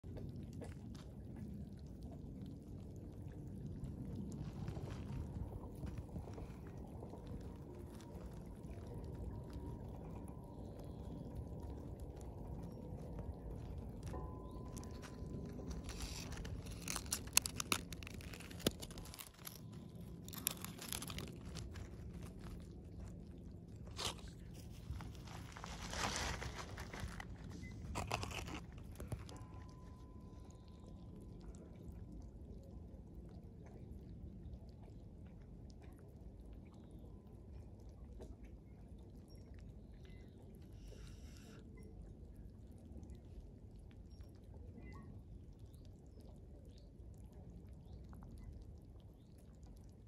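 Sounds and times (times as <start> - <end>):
pebbles crunching on gravel: 14.0 - 23.2, 23.8 - 29.5.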